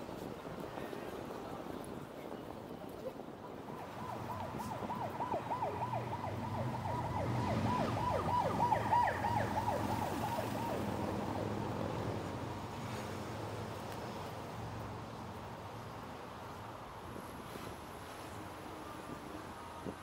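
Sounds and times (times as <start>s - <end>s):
electronic siren: 3.6s - 11.2s.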